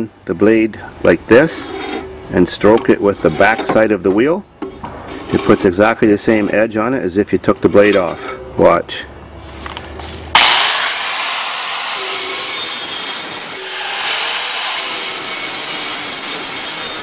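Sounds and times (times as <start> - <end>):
angle grinder motor whine: 10.3 - 17.0
grinder grinding steel blade: 10.4 - 17.0.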